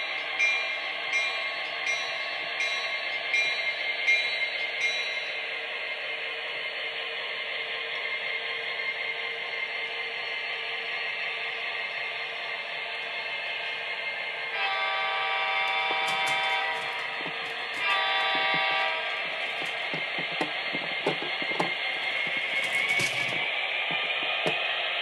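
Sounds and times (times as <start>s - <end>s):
locomotive chime horn: 14.5s - 19.9s
model train wheels clicking: 15.4s - 24.8s.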